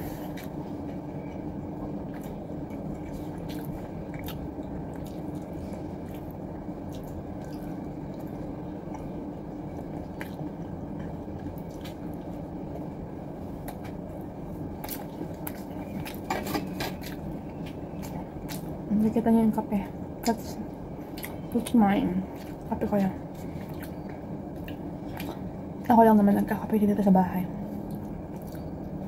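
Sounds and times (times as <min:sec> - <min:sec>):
person chewing food: 0:00.0 - 0:18.8, 0:21.0 - 0:21.5, 0:22.3 - 0:25.6, 0:27.7 - 0:29.0
low background hum: 0:00.0 - 0:29.0.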